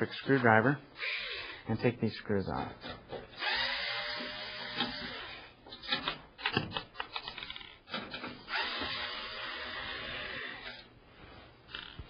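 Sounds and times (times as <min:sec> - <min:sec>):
electric screwdriver running: 0:03.4 - 0:05.4, 0:08.5 - 0:10.8
sharp clicks and knocks: 0:05.6 - 0:09.0.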